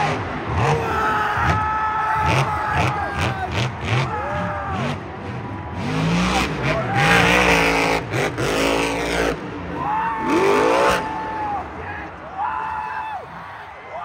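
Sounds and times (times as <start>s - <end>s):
truck engine revving hard: 0.0s - 1.6s, 2.2s - 11.3s.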